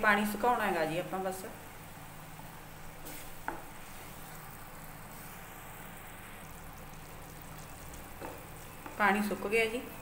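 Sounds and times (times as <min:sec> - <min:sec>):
paste sizzling in frying pan: 0:00.6 - 0:10.0
wooden spatula stirring: 0:03.0 - 0:04.4, 0:07.6 - 0:10.0.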